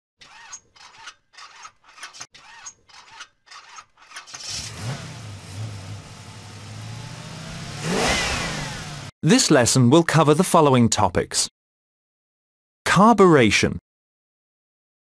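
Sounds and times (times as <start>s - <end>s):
car engine starter cranking: 0.2s - 6.0s
car engine idling: 4.7s - 9.1s.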